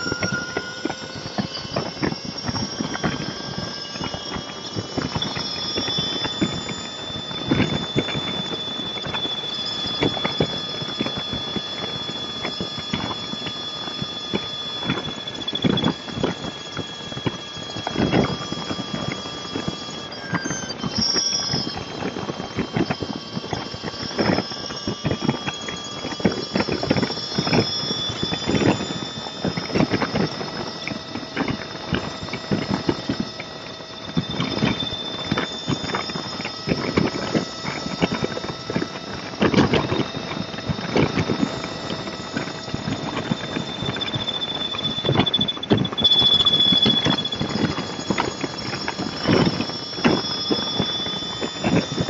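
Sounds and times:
faint steady whines: 0.0s - 52.0s.

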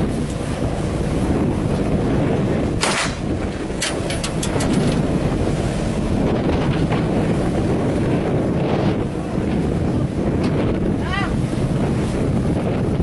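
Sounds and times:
water rushing past hull: 0.0s - 13.0s
wind buffeting microphone: 0.0s - 13.0s.

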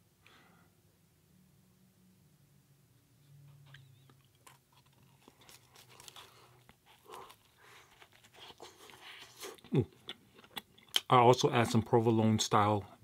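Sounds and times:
biting and chewing food: 3.6s - 11.1s
crisp crunches: 4.4s - 9.6s.

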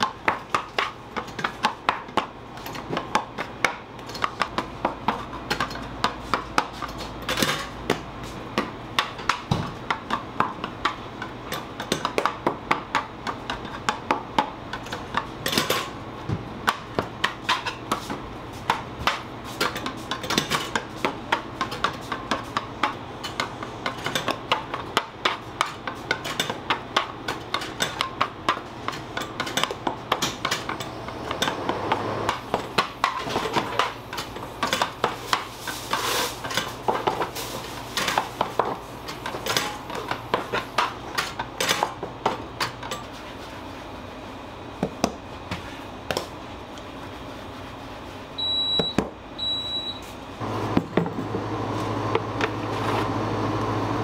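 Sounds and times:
low machine hum: 36.8s - 54.0s.

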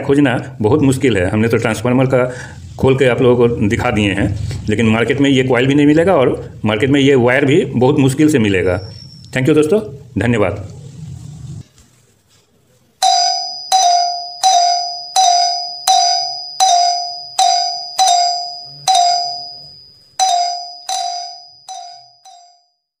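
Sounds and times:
ding-dong bell chime: 13.0s - 22.9s.

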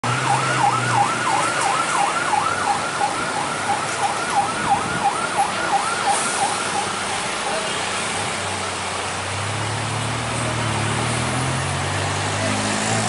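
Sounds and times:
level crossing warning siren: 0.0s - 7.8s.

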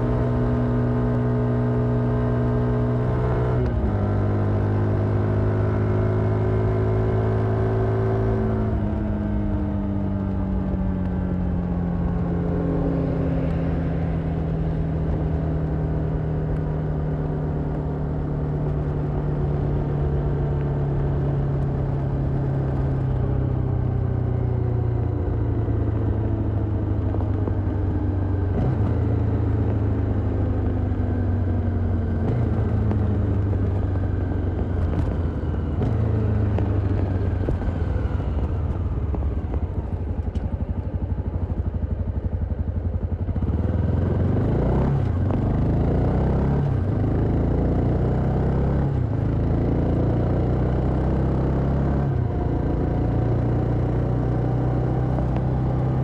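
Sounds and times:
motorcycle engine slowing down: 31.3s - 43.8s.

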